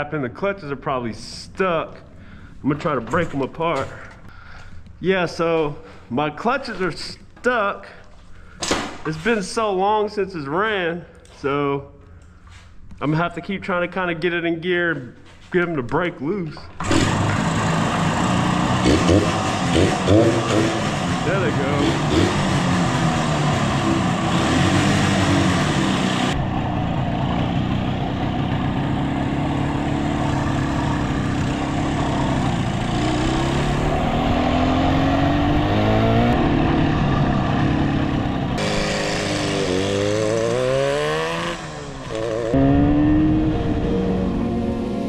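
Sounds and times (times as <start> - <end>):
motorcycle engine revving: 16.8 - 45.0.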